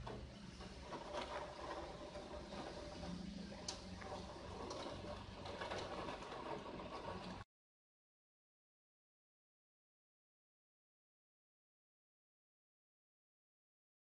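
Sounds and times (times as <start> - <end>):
rain pattering on window: 0.0 - 7.4.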